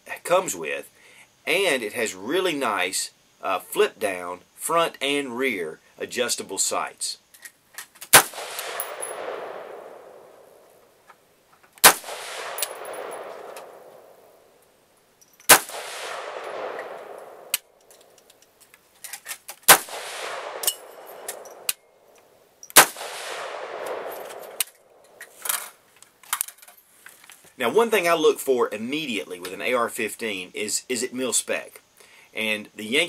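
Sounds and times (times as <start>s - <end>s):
rifle gunshots with echo: 8.1s - 10.7s, 11.8s - 14.4s, 15.5s - 17.6s, 19.7s - 21.7s, 22.8s - 24.6s
faint cracks and clicks: 12.6s - 13.7s, 16.4s - 19.7s, 23.8s - 27.6s.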